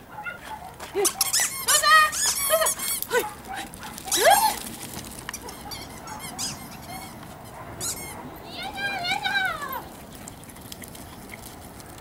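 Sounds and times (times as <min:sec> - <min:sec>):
dog yelping: 0:00.1 - 0:04.6, 0:05.4 - 0:09.9
small dog yipping and whining: 0:01.0 - 0:03.0, 0:05.4 - 0:08.3.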